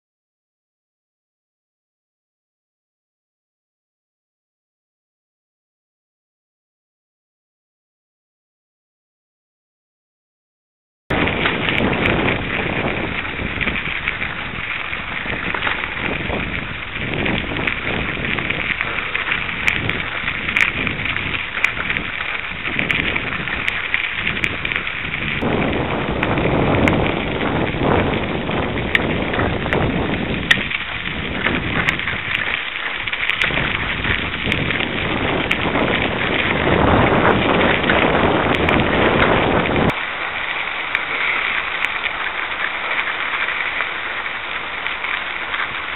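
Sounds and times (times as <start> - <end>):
wind on microphone: 11.1 - 43.7
bicycle tyres on gravel: 11.1 - 45.9.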